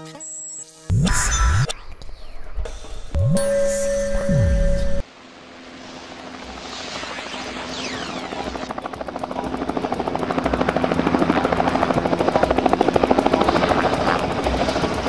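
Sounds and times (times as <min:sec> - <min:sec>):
helicopter rotor beating: 0:05.6 - 0:15.0.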